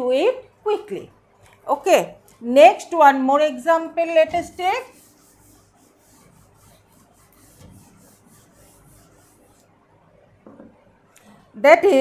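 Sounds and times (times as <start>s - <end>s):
duster rubbing chalkboard: 4.3s - 9.7s.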